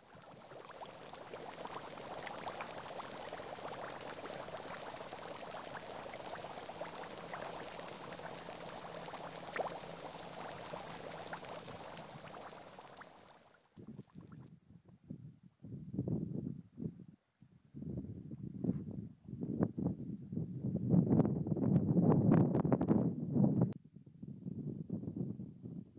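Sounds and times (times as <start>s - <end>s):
air bubbles fizzing from sand: 0.0s - 14.4s.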